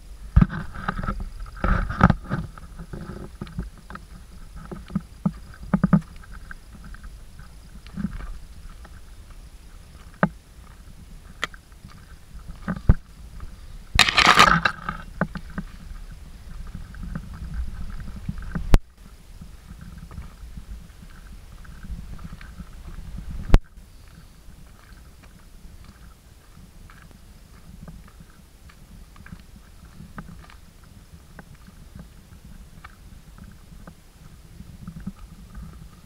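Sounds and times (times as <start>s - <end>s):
footsteps on stony path: 0.0s - 36.0s
loud rustle: 11.8s - 27.1s
camera handling noise: 14.0s - 15.1s.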